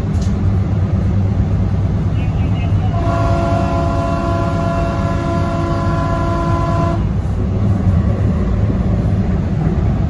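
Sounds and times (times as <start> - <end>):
train rumbling on rails: 0.0 - 10.0
train horn chord: 2.9 - 7.1.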